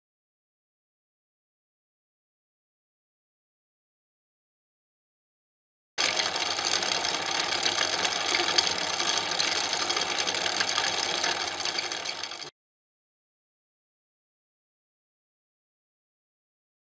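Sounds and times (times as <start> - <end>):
film projector clatter: 6.0 - 12.5.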